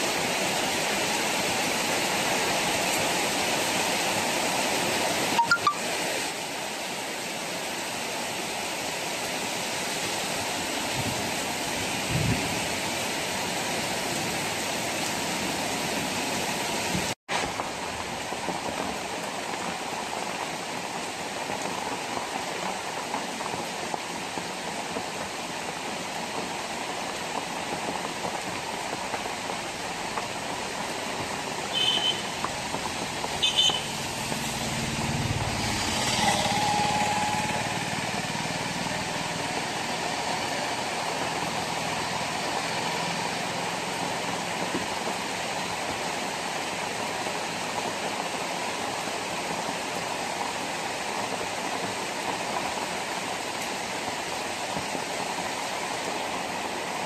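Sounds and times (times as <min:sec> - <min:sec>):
heavy rain on a road: 0:00.0 - 0:57.0
horn toots: 0:31.7 - 0:32.4, 0:33.4 - 0:34.2, 0:35.6 - 0:38.4
small engine passing: 0:33.9 - 0:40.1.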